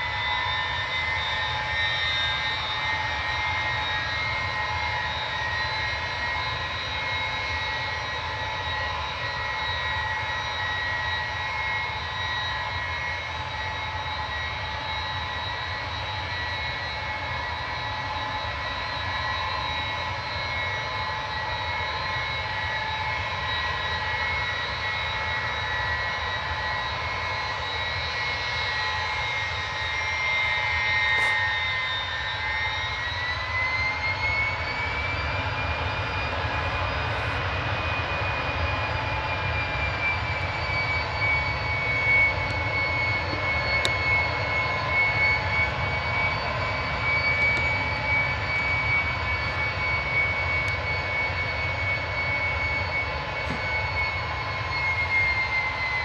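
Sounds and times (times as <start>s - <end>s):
jet engines rumbling and whining: 0.0s - 56.0s.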